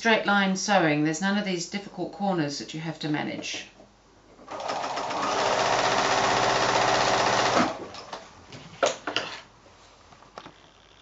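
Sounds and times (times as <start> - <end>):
sewing machine stitching: 4.5 - 7.8.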